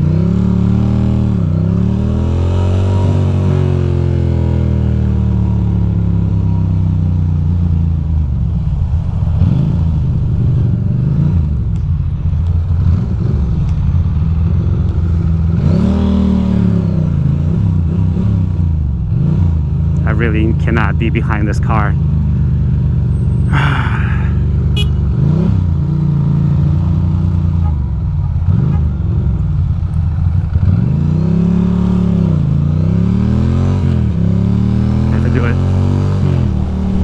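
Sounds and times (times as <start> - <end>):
motorcycle engine running: 21.2 - 37.0.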